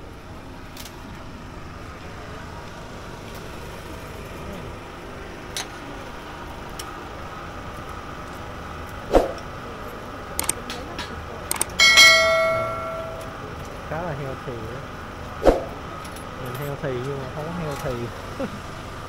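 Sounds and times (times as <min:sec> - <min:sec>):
murmur of voices: 0:00.0 - 0:19.0
light clicks: 0:10.4 - 0:11.8.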